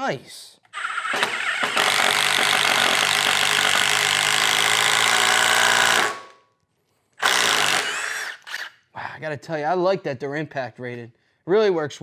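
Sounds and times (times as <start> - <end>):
impact driver drilling wood: 0.7 - 6.3, 7.2 - 8.8.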